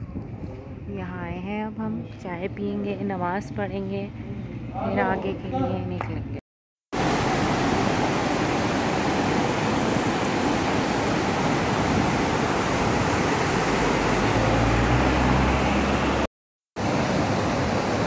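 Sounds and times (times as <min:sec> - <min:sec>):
stream rushing over rocks: 0:07.0 - 0:18.0.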